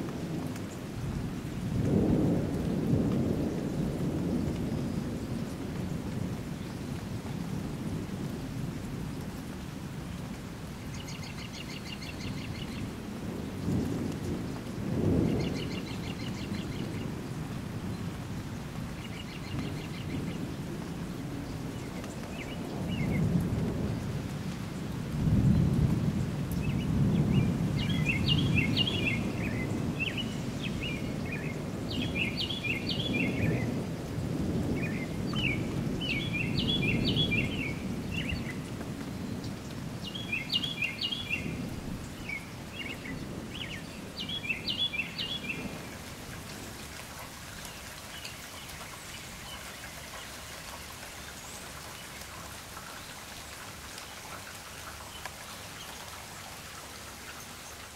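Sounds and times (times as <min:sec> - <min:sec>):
thunder rumbling: 0:00.0 - 0:09.3, 0:12.5 - 0:49.0
steady rain: 0:00.0 - 0:57.9
songbird singing: 0:10.1 - 0:57.9.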